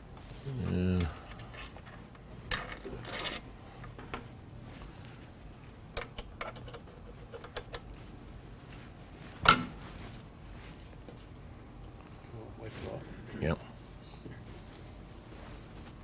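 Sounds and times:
metal parts scraping and clicking: 1.3 - 3.5.

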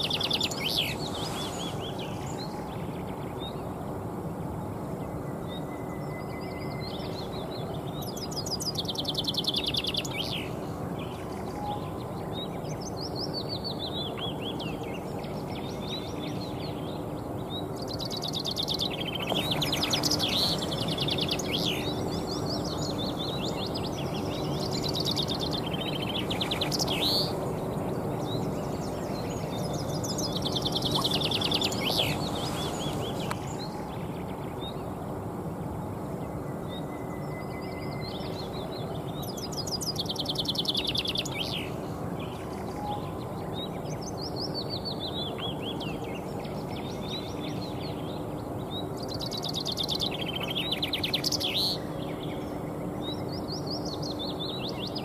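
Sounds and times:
chaffinch singing: 0.0 - 3.7, 6.0 - 35.0, 36.7 - 55.0
steady background noise: 0.0 - 55.0.

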